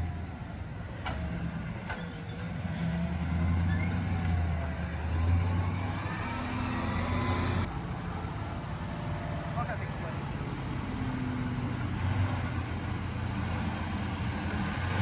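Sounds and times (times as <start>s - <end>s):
vehicle engine at low revs: 0.0s - 7.8s.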